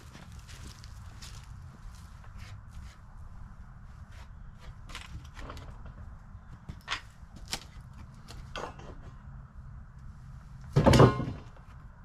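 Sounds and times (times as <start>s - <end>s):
shuffling steps: 0.0s - 8.5s.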